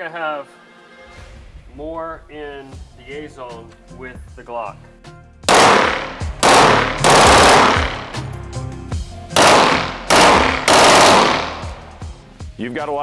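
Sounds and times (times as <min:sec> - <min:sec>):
machine pistol bursts: 0:05.5 - 0:08.2, 0:09.4 - 0:11.9.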